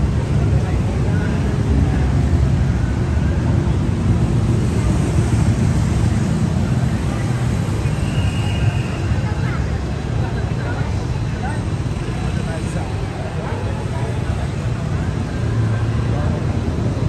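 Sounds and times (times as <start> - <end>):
road traffic rumble: 0.0 - 17.0.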